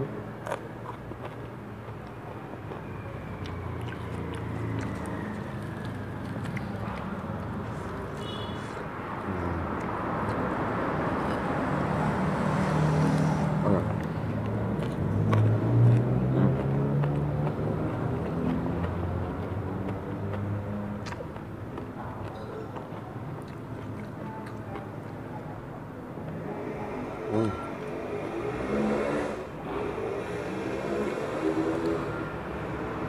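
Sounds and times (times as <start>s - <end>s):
person chewing crispy food: 0.3s - 8.8s, 9.6s - 25.5s.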